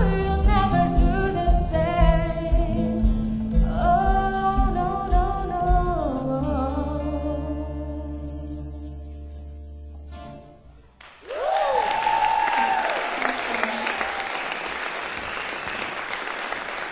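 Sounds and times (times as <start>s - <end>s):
audience applause: 11.0s - 16.9s
person whooping: 11.2s - 15.8s.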